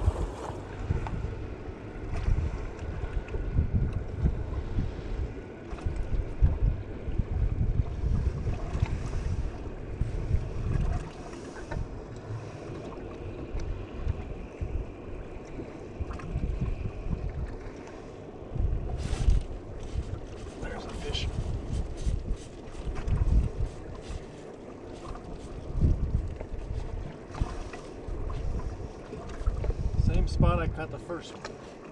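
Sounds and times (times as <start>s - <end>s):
wind buffeting microphone: 0.0s - 12.1s, 13.0s - 17.7s, 18.5s - 24.4s, 25.0s - 31.0s.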